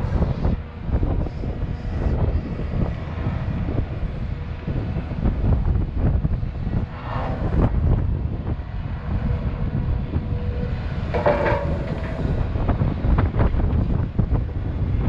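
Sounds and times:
wind buffeting microphone: 0:00.0 - 0:15.0
excavator diesel engine under load: 0:09.4 - 0:14.3.

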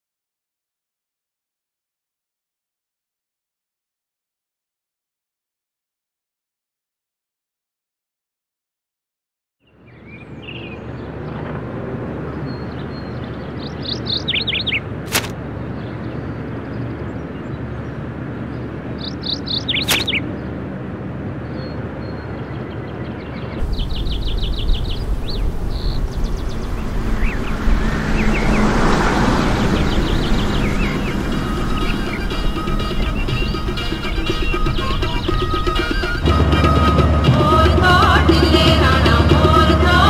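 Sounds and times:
birds chirping: 0:12.3 - 0:20.7, 0:21.4 - 0:40.0
sharp click: 0:15.1 - 0:15.4, 0:19.8 - 0:20.2
fast chirping trill: 0:19.2 - 0:20.2, 0:23.6 - 0:37.2
low rumble: 0:23.6 - 0:39.0
steady noise bed: 0:23.6 - 0:40.0.

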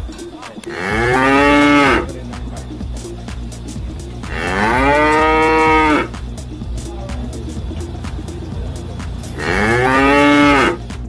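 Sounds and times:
cow mooing: 0:00.7 - 0:02.2, 0:04.2 - 0:06.2, 0:09.3 - 0:10.8.

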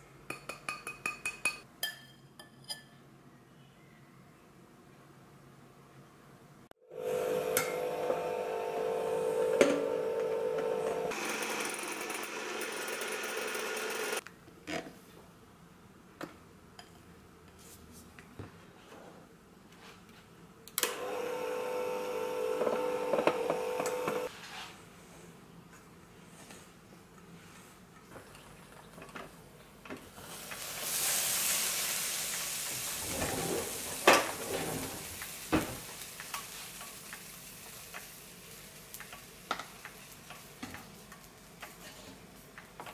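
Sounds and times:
electric hand mixer whine: 0:06.9 - 0:14.2, 0:21.0 - 0:24.3.

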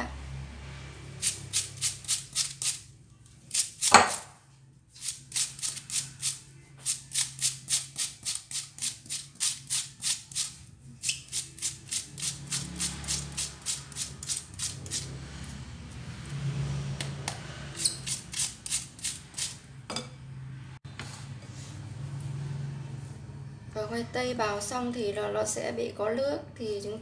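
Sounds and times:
onion rasping on a grater: 0:01.2 - 0:02.8, 0:05.0 - 0:15.1, 0:17.8 - 0:19.6.

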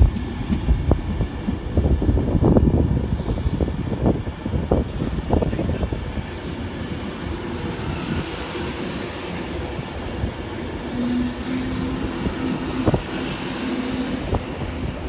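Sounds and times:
electric train rumbling: 0:00.0 - 0:15.0
wind buffeting microphone: 0:00.0 - 0:15.0.

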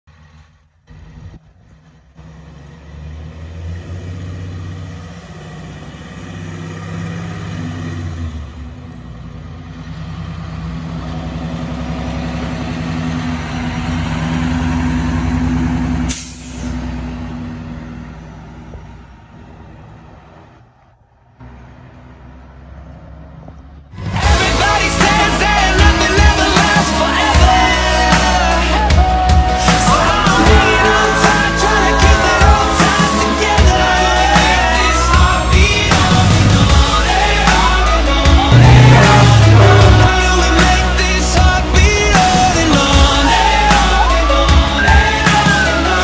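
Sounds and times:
diesel engine of passing truck: 0:00.1 - 0:46.0
air brakes hissing: 0:16.1 - 0:16.9.

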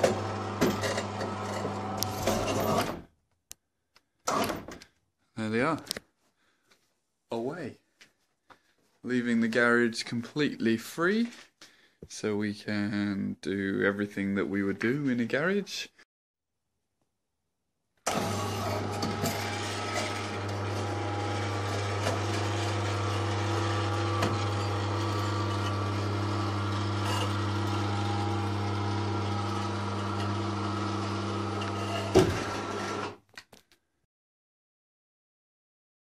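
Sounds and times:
cable hoist motor humming: 0:18.1 - 0:33.1.

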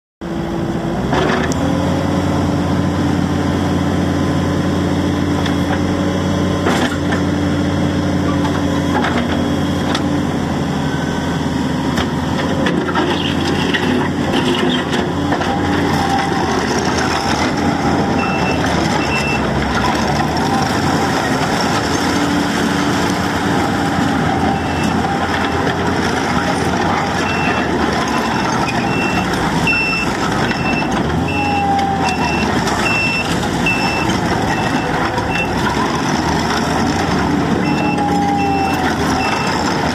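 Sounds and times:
diesel engine running: 0:00.2 - 0:39.9
machine driving across gravel: 0:11.4 - 0:39.9.

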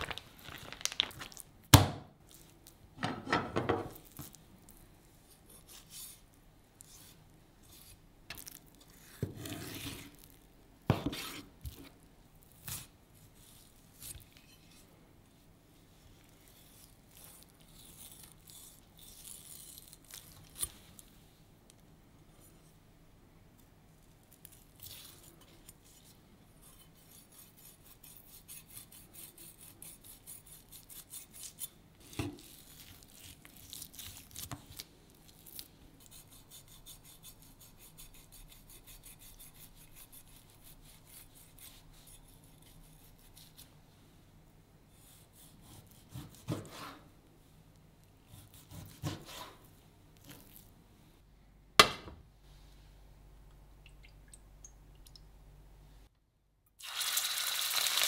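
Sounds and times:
knife scraping and slicing meat: 0:05.3 - 0:14.9, 0:16.2 - 0:20.8, 0:24.3 - 0:43.7, 0:44.9 - 0:47.1, 0:48.3 - 0:50.7.

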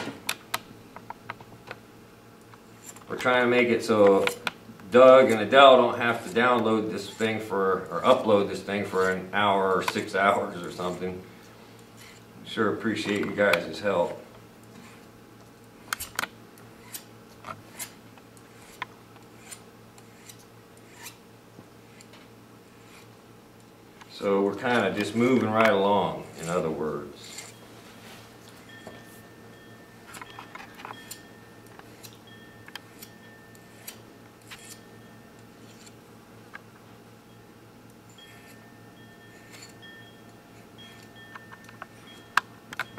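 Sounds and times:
faint steady hum: 0:00.0 - 0:42.9
file scraping wire: 0:02.7 - 0:03.1, 0:11.8 - 0:12.3, 0:15.8 - 0:21.2, 0:21.8 - 0:23.2, 0:24.6 - 0:27.6, 0:30.0 - 0:36.0, 0:38.1 - 0:38.7, 0:39.3 - 0:39.8
file clicking on wire: 0:15.8 - 0:21.2, 0:30.1 - 0:36.0.

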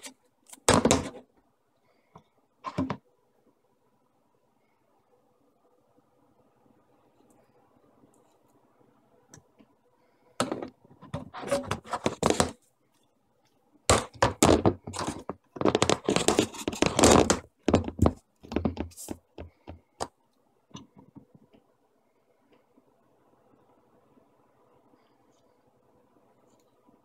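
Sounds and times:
plastic pipes knocking on countertop: 0:00.7 - 0:01.2, 0:13.9 - 0:19.8.

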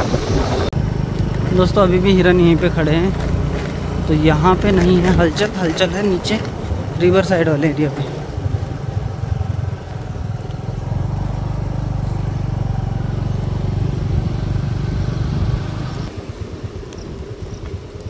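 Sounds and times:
vehicle engine droning: 0:00.0 - 0:18.0.

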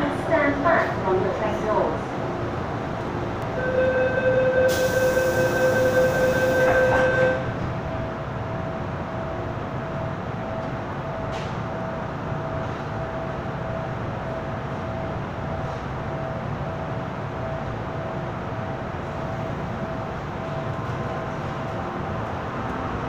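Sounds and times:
train car hum with faint whine: 0:00.0 - 0:23.0
buzzer-like tone: 0:03.6 - 0:07.4
hiss: 0:04.7 - 0:05.6.

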